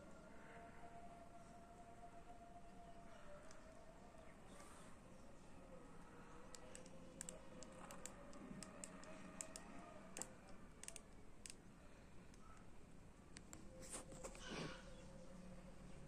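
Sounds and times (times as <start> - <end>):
fingers tapping watch screen: 6.5 - 11.6.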